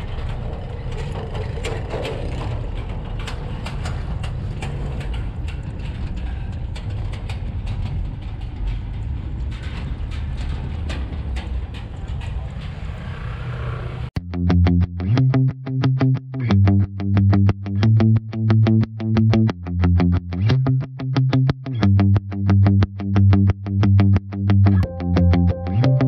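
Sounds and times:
motorbike engine and wind rumble: 0.0s - 14.1s.

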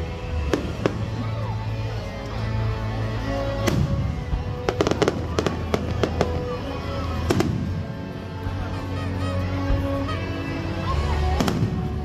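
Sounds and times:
fireworks bangs and crackles: 0.0s - 1.9s, 3.4s - 8.2s, 11.2s - 12.0s
music playing: 0.0s - 12.0s.

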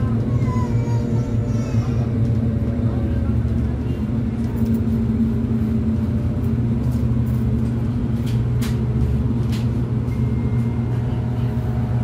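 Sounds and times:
bus engine low rumble: 0.0s - 12.0s.

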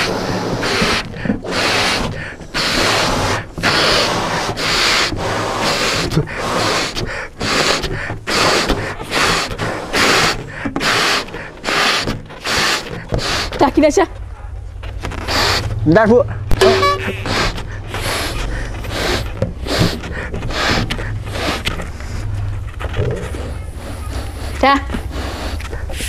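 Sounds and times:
breaths blown into balloons: 0.0s - 14.0s, 15.0s - 26.0s
quick gasping inhales: 17.2s - 22.3s.

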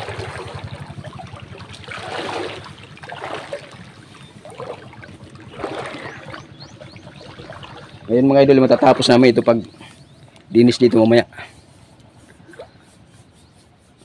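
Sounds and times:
low rumble: 0.0s - 9.1s
water splashing against boat hull: 0.0s - 11.1s.

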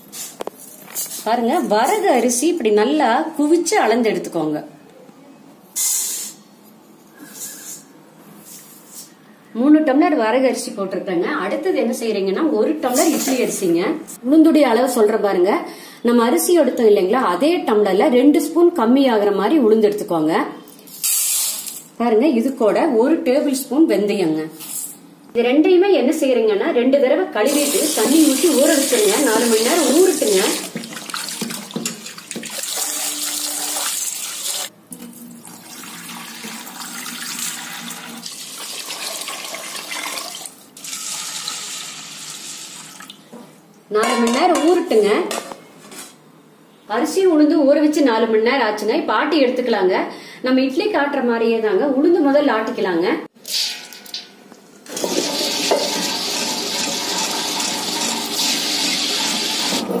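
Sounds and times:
rinse water splashing: 27.6s - 43.2s, 54.9s - 59.9s
tap water running into bowl: 27.6s - 43.2s, 54.9s - 59.8s
wet grinder churning whir: 54.9s - 59.9s.

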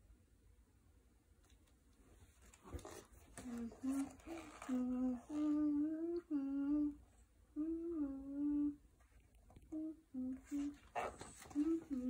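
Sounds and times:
girl humming: 3.4s - 8.8s, 9.6s - 12.0s.

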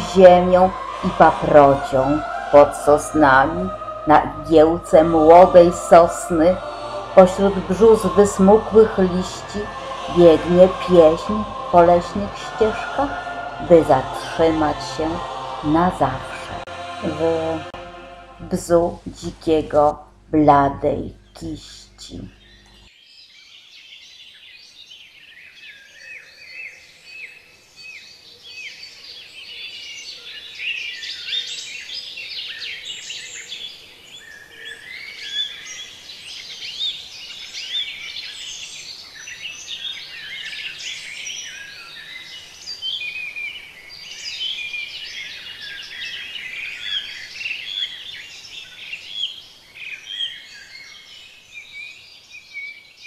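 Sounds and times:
songbirds chirping and trilling: 22.2s - 53.0s.

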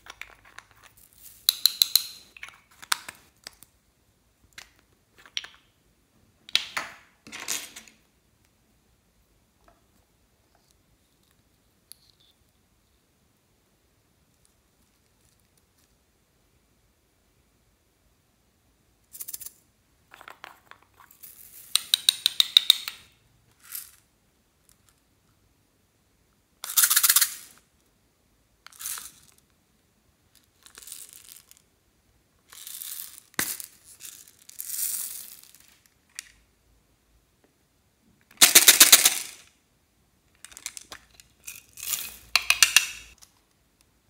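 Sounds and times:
plastic beads rattling: 0.0s - 3.2s, 28.7s - 29.4s, 30.3s - 31.6s, 32.5s - 36.2s, 38.4s - 39.5s, 40.4s - 43.2s.

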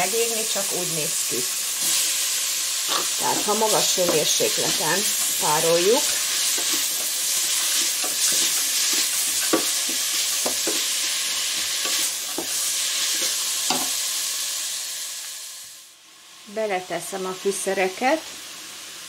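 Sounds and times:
onions sizzling in oil: 0.0s - 19.0s
wooden spoon scraping pot: 2.9s - 13.4s.

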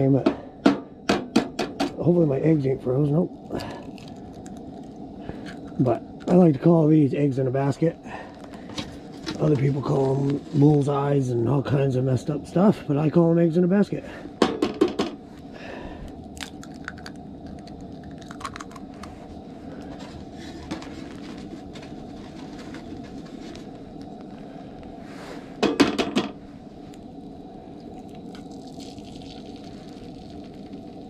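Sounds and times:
gas stove burner hissing: 0.0s - 16.3s, 18.9s - 28.6s
eggs cracked against a pan: 16.3s - 18.9s.

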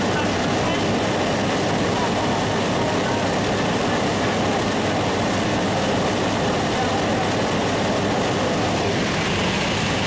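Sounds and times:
aircraft engine drone: 0.0s - 10.0s
rushing air: 7.4s - 10.0s.

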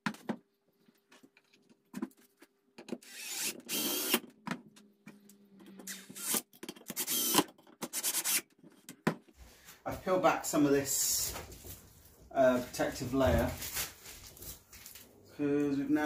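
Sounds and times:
drill driving screws into wood: 2.9s - 4.3s, 5.9s - 8.5s.

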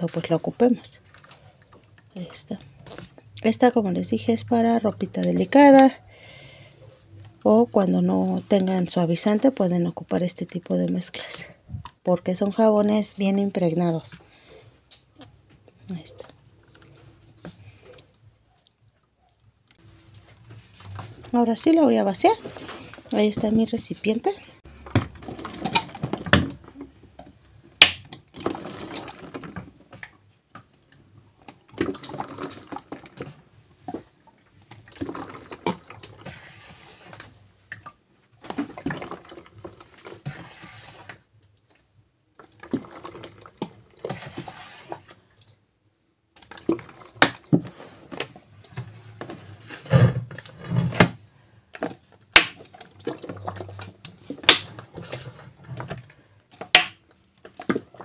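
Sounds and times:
liquid soap pouring into jug: 28.3s - 30.0s, 31.7s - 34.0s, 34.6s - 41.2s, 42.4s - 45.0s, 52.7s - 55.9s.

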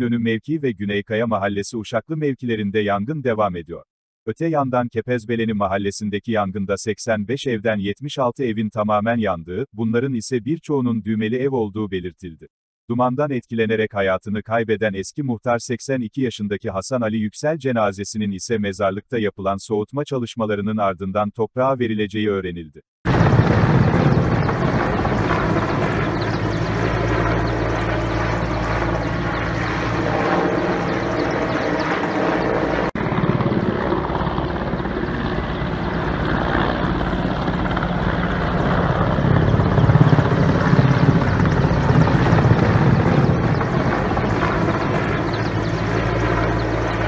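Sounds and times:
helicopter rotor and engine: 23.1s - 47.0s.

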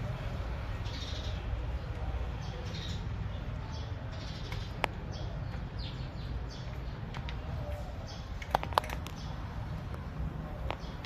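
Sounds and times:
birds chirping: 0.0s - 11.0s
cats eating dry kibble: 6.5s - 11.0s.

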